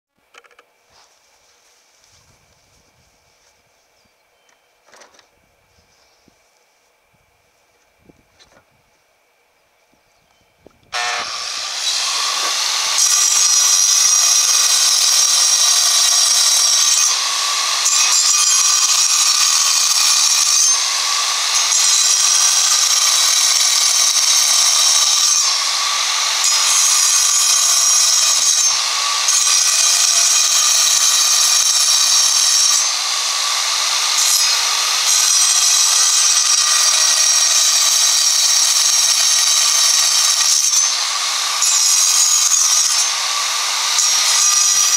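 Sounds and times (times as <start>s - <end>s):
angle grinder cutting stone: 10.9s - 44.9s.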